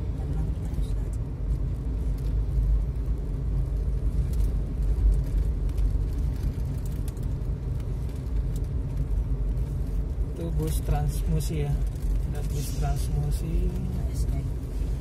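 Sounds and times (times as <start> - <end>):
vehicle rumble: 0.0 - 15.0.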